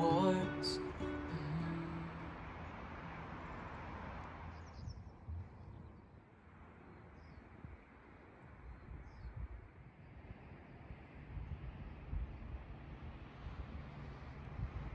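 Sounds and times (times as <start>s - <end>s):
background music: 0.0s - 2.5s.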